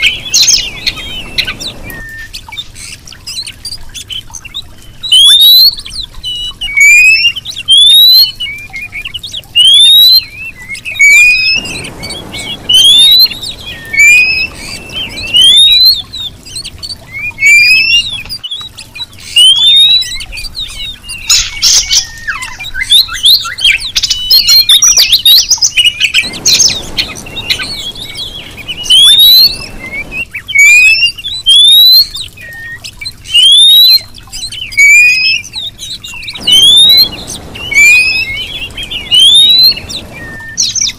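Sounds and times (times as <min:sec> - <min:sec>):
bird rising whistle call: 0:00.0 - 0:02.4, 0:09.6 - 0:18.5, 0:19.3 - 0:20.3, 0:21.2 - 0:34.1, 0:34.7 - 0:40.9
bird chirps and twitters: 0:00.0 - 0:40.9.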